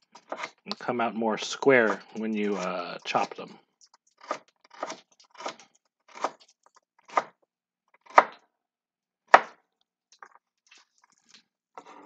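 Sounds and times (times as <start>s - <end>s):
knife chopping on wooden board: 4.2s - 6.4s, 7.1s - 7.4s, 8.0s - 8.4s, 9.3s - 9.6s.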